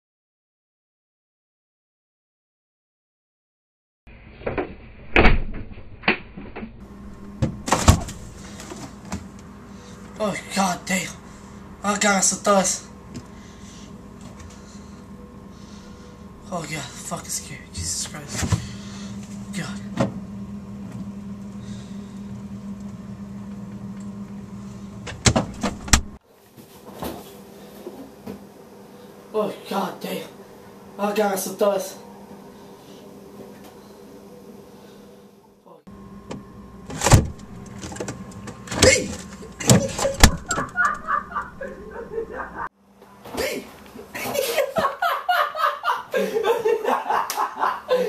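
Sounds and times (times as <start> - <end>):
thud: 4.4 - 6.8
refrigerator humming: 4.9 - 48.0
refrigerator door knocks and clicks: 36.3 - 39.0, 39.6 - 40.7.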